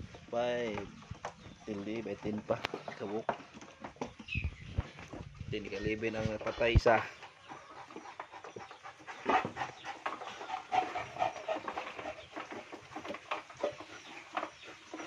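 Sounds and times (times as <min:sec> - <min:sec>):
pig breathing and grunting: 0:06.9 - 0:15.0
pig high-pitched calls: 0:07.5 - 0:12.3.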